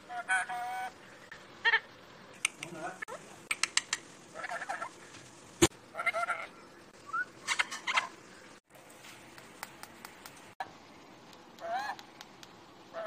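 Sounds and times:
sharp clicks and taps: 9.3s - 10.5s, 11.3s - 12.6s.

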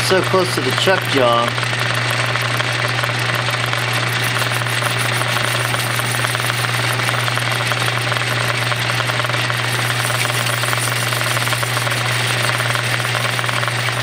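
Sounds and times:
metal lathe running: 0.0s - 14.0s.

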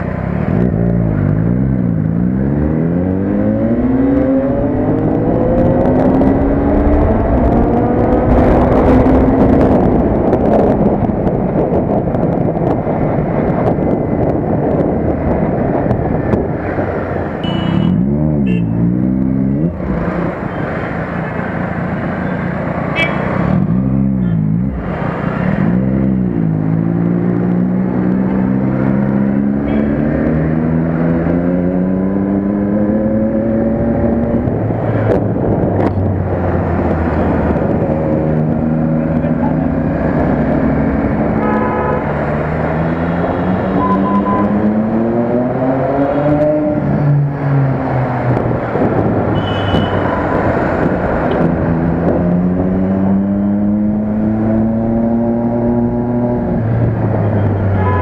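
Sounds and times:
wind rush: 3.1s - 17.4s, 30.5s - 43.8s, 44.4s - 57.7s
motorcycle engine: 27.6s - 47.3s.

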